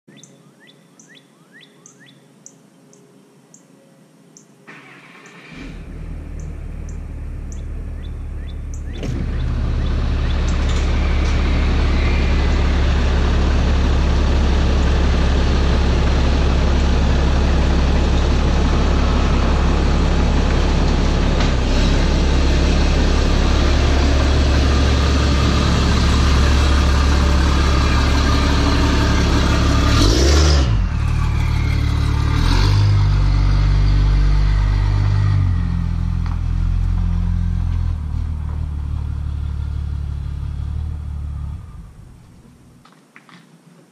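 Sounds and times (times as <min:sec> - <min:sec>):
pickup truck engine humming: 0:05.8 - 0:42.8.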